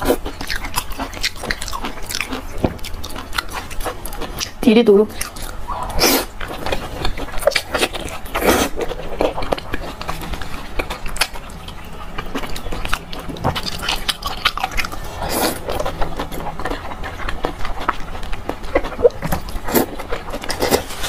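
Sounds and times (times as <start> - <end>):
wet chewing and biting: 0.0 - 21.0
slurping: 5.4 - 17.2.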